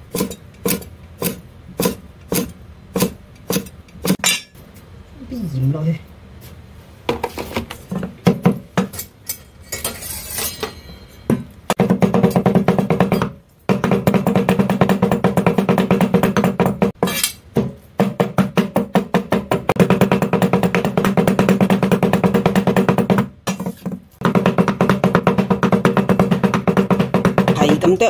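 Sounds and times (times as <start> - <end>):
cleavers chopping on wooden board: 11.7 - 17.0, 17.6 - 28.0.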